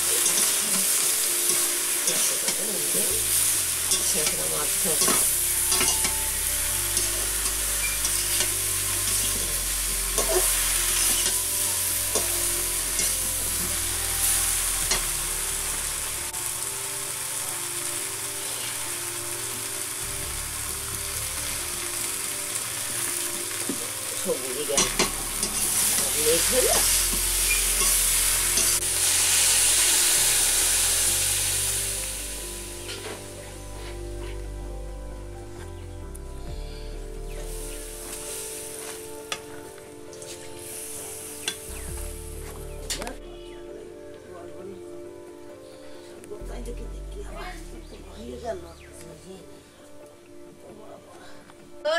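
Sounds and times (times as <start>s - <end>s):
vegetables sizzling in oil: 0.0s - 34.5s, 37.1s - 43.2s
metal spatula scraping a wok: 0.1s - 2.7s, 7.0s - 15.1s.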